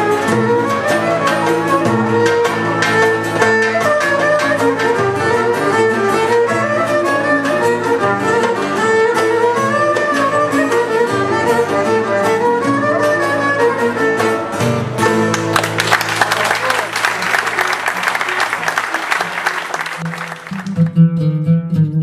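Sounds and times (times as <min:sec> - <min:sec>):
plucked lutes: 0:00.0 - 0:16.7, 0:19.7 - 0:22.0
violin melody: 0:00.0 - 0:21.5
applause: 0:15.3 - 0:20.9.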